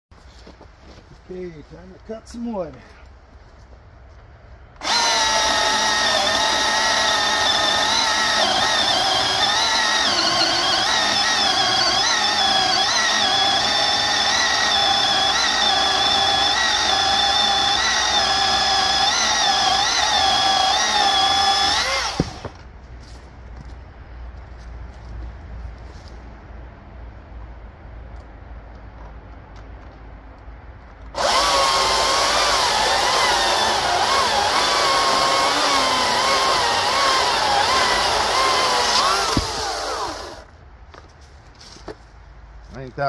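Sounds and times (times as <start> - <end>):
chainsaw cutting log: 4.8 - 22.6, 31.2 - 40.5.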